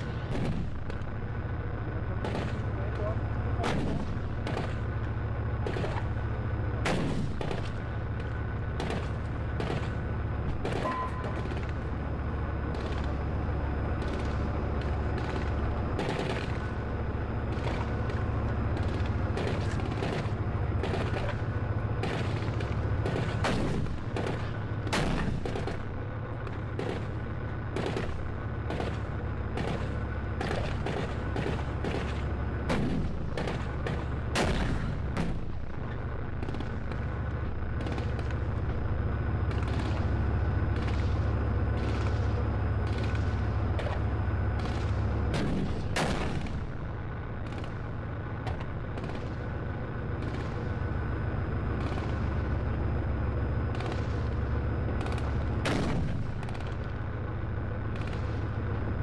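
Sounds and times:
tank engine rumbling: 0.0 - 59.0
gunfire cracks: 3.6 - 4.9, 6.8 - 7.8, 22.0 - 25.8, 29.6 - 35.5, 44.6 - 46.6, 55.0 - 56.8.

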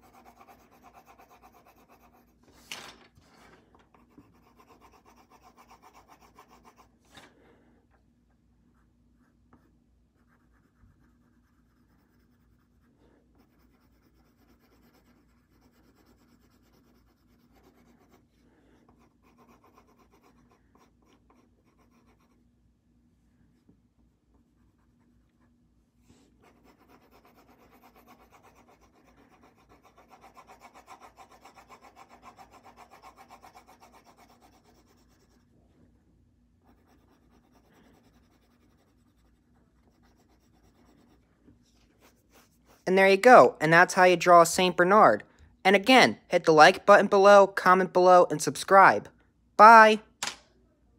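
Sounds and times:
pencil scratching on paper: 0.0 - 2.6, 3.9 - 7.0, 8.7 - 22.5, 24.3 - 35.6, 36.6 - 45.1.

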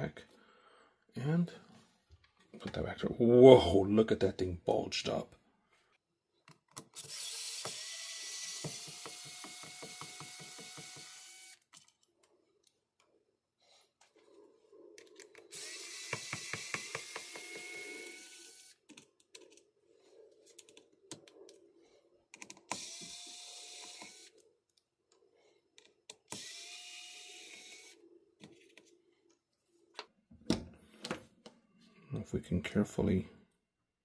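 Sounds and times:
electric screwdriver running: 7.0 - 11.6, 15.5 - 18.8, 22.7 - 24.4, 26.3 - 28.0.

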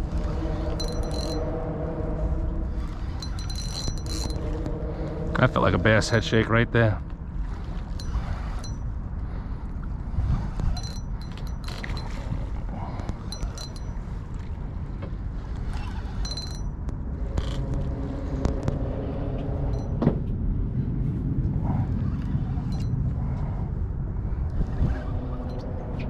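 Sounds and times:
steady low rumble: 0.0 - 26.0
fishing reel clicks and clinks: 0.2 - 1.4, 2.8 - 4.6, 7.5 - 8.9, 10.4 - 12.4, 13.1 - 14.5, 15.6 - 16.8.

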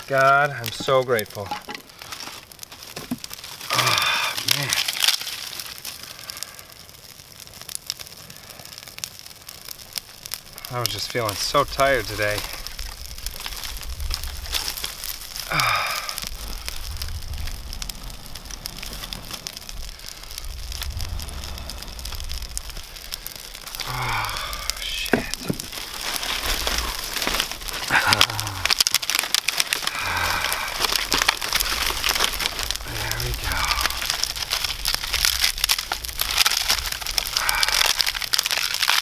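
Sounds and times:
fire crackling and popping: 0.0 - 39.0
person making wordless sounds: 23.8 - 25.6, 27.9 - 28.8.

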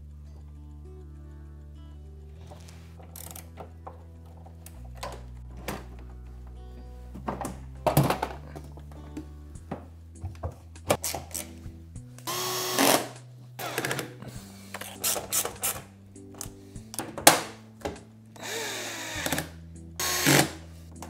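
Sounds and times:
background music: 0.0 - 21.0
clicks and knocks of handled parts: 2.5 - 6.3
electric drill driving screws: 12.3 - 14.1, 18.4 - 20.6.

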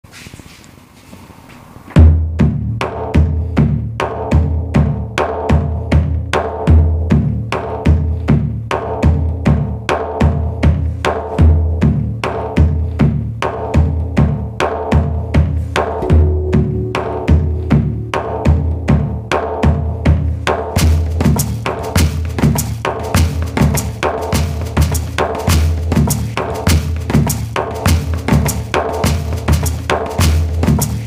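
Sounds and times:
didgeridoo drone: 16.0 - 19.4
electronic drum beat: 16.0 - 20.0.

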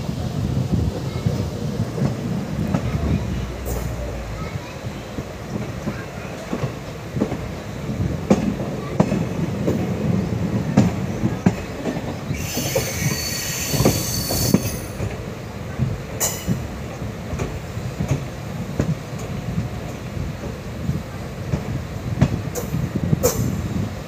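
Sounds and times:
train wheels clicking over rails: 0.1 - 24.0
shrill wheel squeal: 12.3 - 15.0.

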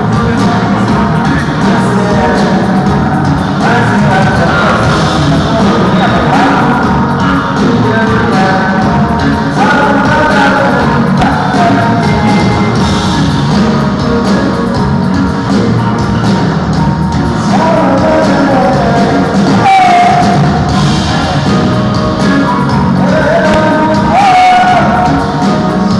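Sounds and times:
amplified live band music: 0.0 - 25.9
person singing: 0.0 - 25.9.

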